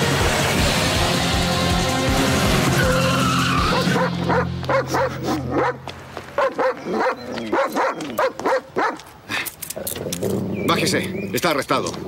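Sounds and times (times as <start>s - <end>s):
dog barking and yelping: 3.7s - 5.8s, 6.4s - 9.1s.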